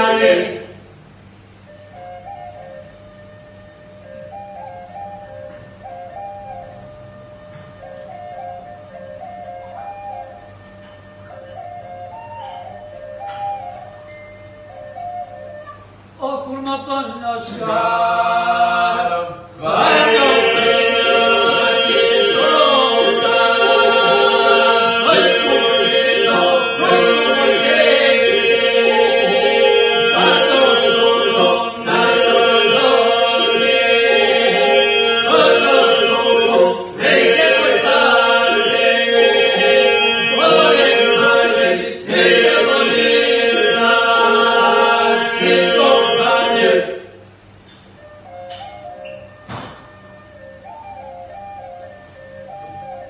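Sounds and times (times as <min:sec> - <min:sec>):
men singing steady drone: 0:00.0 - 0:00.9, 0:17.2 - 0:47.2
solo male voices singing: 0:17.4 - 0:47.0.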